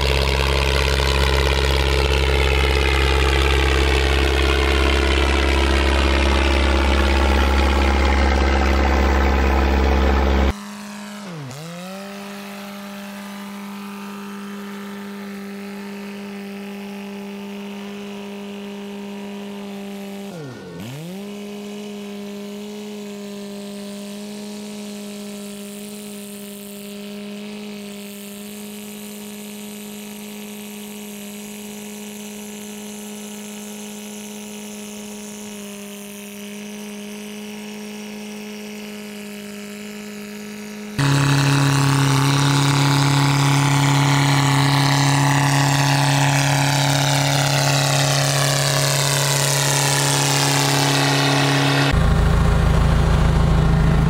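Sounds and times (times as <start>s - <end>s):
dozer diesel engine running: 0.0s - 10.5s, 40.8s - 54.0s.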